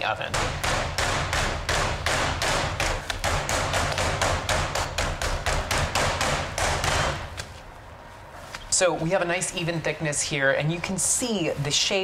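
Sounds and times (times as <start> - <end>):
meat mallet pounding meat: 0.3 - 7.4.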